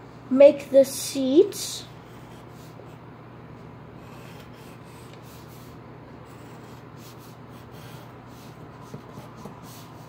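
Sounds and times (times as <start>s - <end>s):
steady low hum: 0.0s - 10.0s
pencil scratching on paper: 1.9s - 3.1s, 4.0s - 10.0s.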